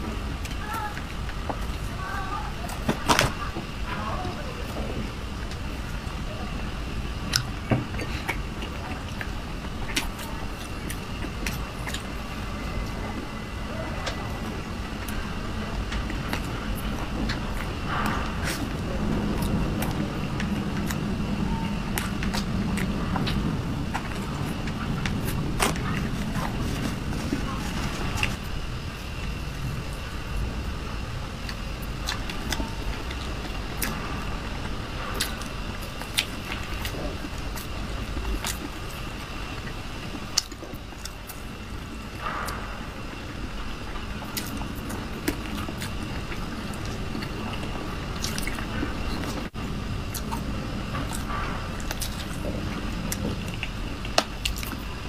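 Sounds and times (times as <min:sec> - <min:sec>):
low background rumble: 0:00.0 - 0:55.0
steady low hum: 0:00.0 - 0:55.0
mouth clicks chewing: 0:31.4 - 0:55.0.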